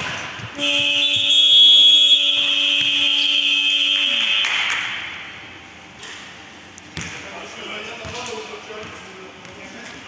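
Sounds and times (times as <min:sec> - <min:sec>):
basketball buzzer blast: 0:00.6 - 0:05.0.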